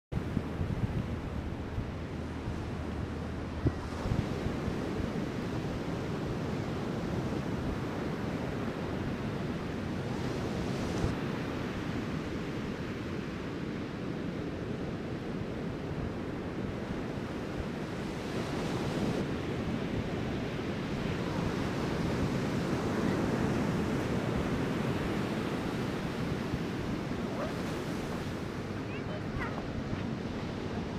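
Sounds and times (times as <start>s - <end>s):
wind buffeting microphone: 0.1s - 11.3s
ocean surf breaking: 17.9s - 30.9s.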